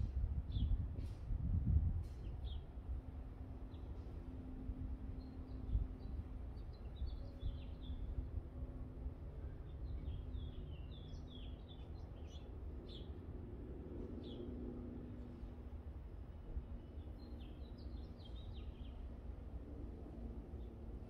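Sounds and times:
small birds chirping: 16.8s - 19.1s.

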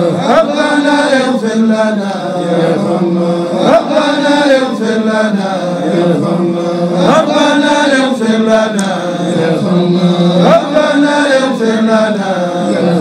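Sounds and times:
man chanting: 0.0s - 13.0s.

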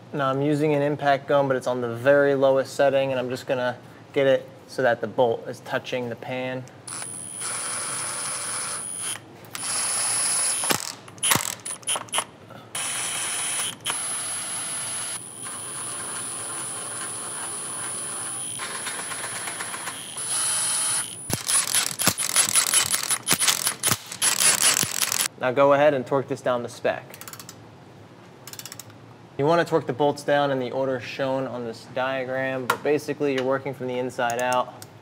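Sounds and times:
impact gun whining: 6.9s - 25.3s
ratchet clicking: 10.5s - 12.3s, 21.3s - 25.3s, 28.5s - 28.9s.

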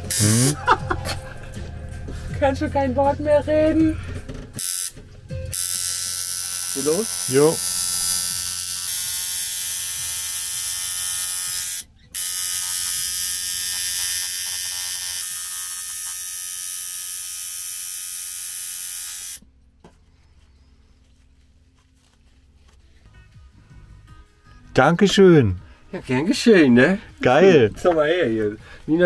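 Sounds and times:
tattoo machine buzzing: 0.0s - 0.6s, 4.6s - 19.4s.

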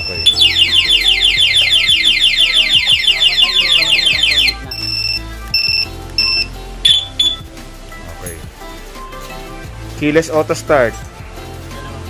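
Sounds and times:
alarm siren falling chirps: 0.0s - 5.2s, 6.2s - 7.4s
short alarm beeps: 0.0s - 7.4s.

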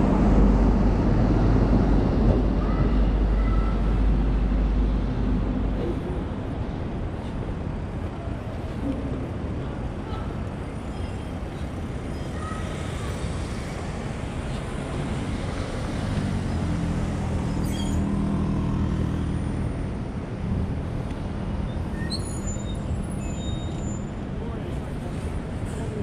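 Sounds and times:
city street traffic: 0.0s - 26.0s.

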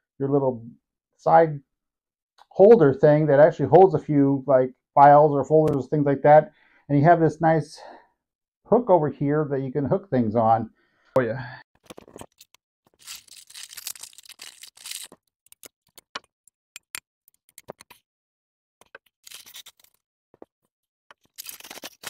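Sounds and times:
plastic wrap crinkling: 11.9s - 15.3s, 21.2s - 22.0s.

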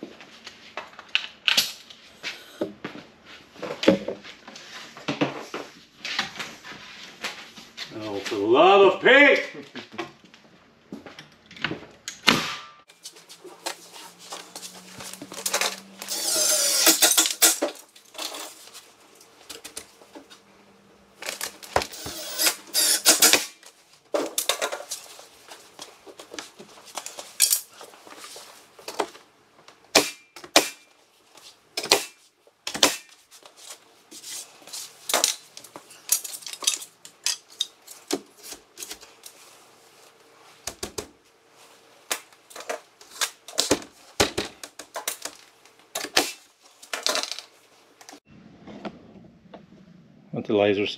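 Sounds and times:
pneumatic nail gun firing: 16.0s - 17.8s, 21.8s - 23.6s, 29.9s - 30.9s, 31.8s - 33.1s, 46.0s - 46.5s.

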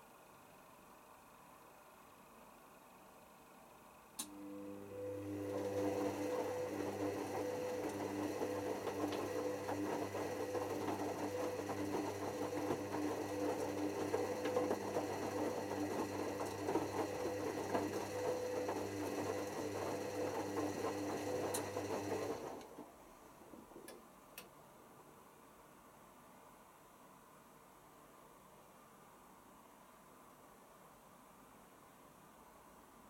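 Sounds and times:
washing machine motor hum: 4.2s - 22.9s
wet laundry churning in drum: 5.2s - 22.6s.

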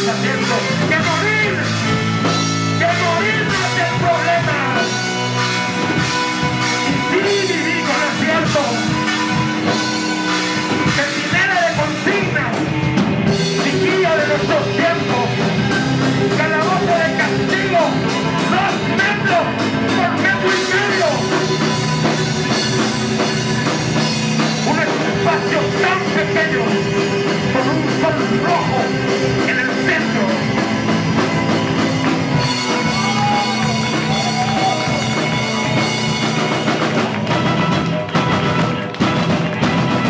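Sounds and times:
drum kit: 0.0s - 40.0s
electric guitar: 0.0s - 40.0s.

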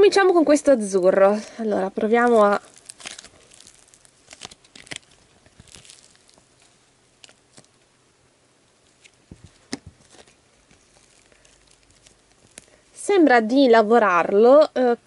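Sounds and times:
slime crackling when stretched: 2.0s - 7.9s, 8.8s - 13.2s.

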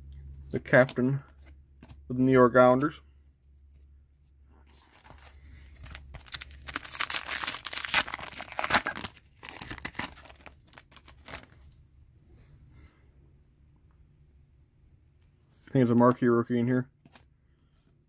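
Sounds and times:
foil wrapper tearing and crinkling: 4.7s - 11.6s.

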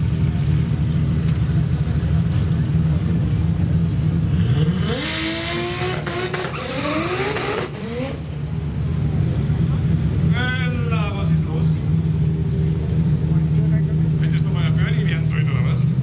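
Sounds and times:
drag car accelerating: 0.0s - 16.0s
low engine drone: 0.0s - 16.0s.

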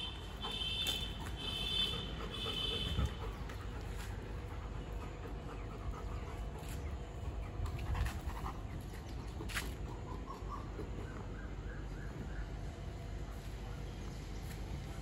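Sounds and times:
dog panting hard: 0.2s - 11.2s.

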